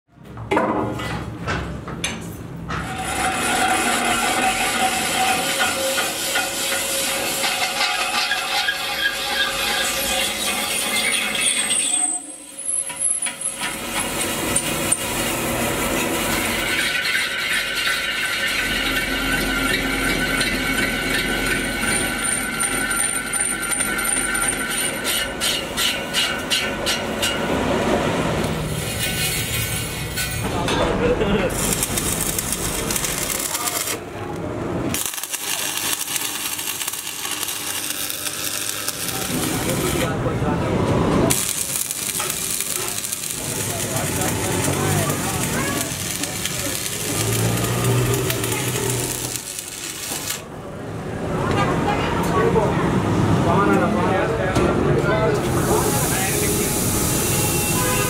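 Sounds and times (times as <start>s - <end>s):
welding arc crackling: 2.8s - 12.2s, 13.2s - 25.0s, 31.4s - 34.1s, 34.8s - 40.2s, 41.2s - 50.5s, 55.5s - 58.0s
metal lathe cutting steel: 2.8s - 27.4s, 31.5s - 34.0s, 35.0s - 40.3s, 41.3s - 50.5s.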